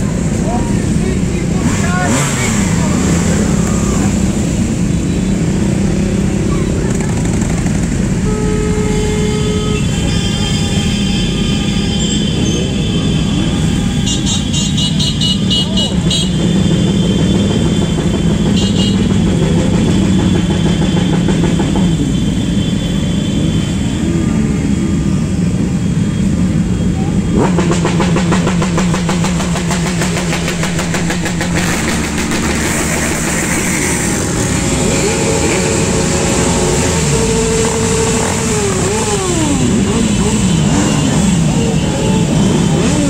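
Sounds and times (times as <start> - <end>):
motorcycle engines revving: 0.0 - 43.0
motorcycle exhaust pulsing: 27.3 - 43.0.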